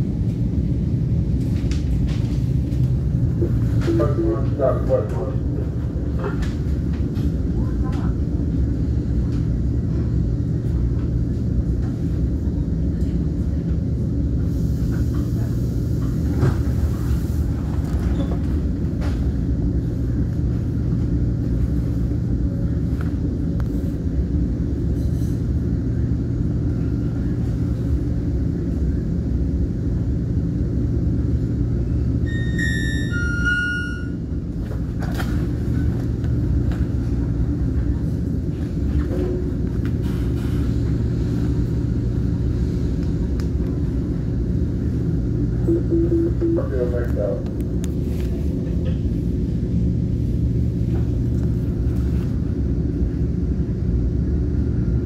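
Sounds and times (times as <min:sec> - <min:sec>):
train rumbling: 0:00.0 - 0:55.0
electronic tones: 0:45.7 - 0:46.6.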